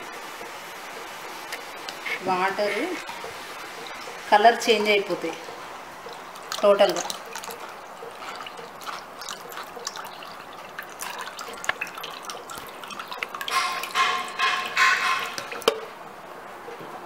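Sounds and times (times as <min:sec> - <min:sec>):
water dripping into glass bowl: 0:05.3 - 0:15.9.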